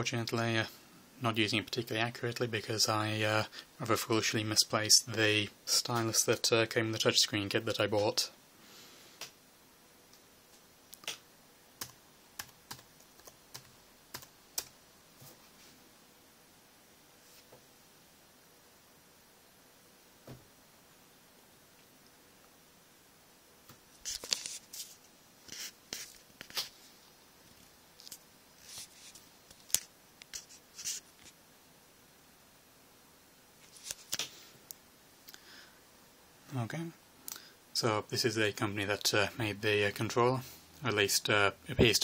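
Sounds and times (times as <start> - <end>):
keyboard typing: 11.8 - 14.7.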